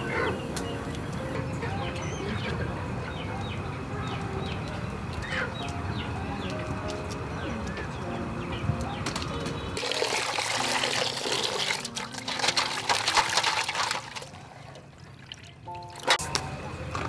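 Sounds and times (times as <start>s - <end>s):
water splashing and sloshing: 9.2s - 16.4s.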